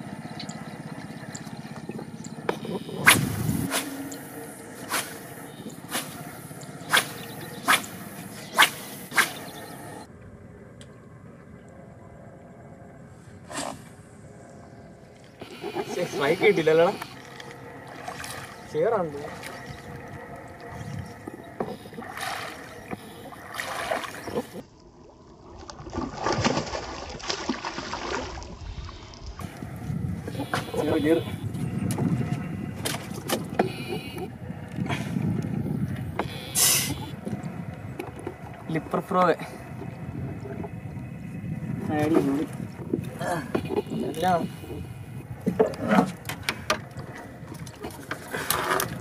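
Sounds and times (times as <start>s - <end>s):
fishing rod swishing: 3.0s - 9.5s
lure splashing on water: 15.4s - 20.0s, 21.6s - 24.6s, 25.7s - 28.5s
pattering and splashing water: 15.5s - 24.6s, 25.5s - 29.7s.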